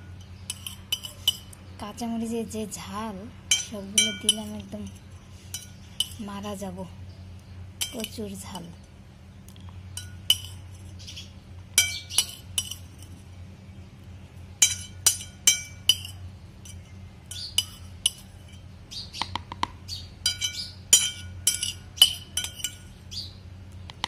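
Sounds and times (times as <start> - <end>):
spoon clinking against plate: 0.1 - 1.6, 3.5 - 6.2, 7.8 - 8.2, 10.0 - 11.0, 11.8 - 13.2, 14.6 - 18.7, 20.2 - 23.0.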